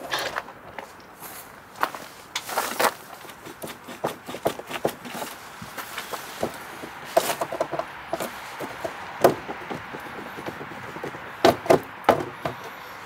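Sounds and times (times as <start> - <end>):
plastic bumper cover knocking and clicking: 7.2 - 12.7.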